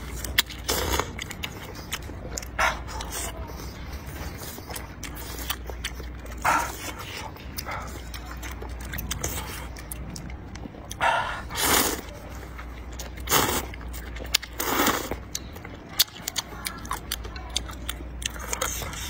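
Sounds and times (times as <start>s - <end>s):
wet chewing and smacking: 0.0s - 19.0s
person slurping noodles: 0.6s - 1.2s, 10.9s - 12.1s, 13.3s - 13.7s, 14.6s - 15.2s.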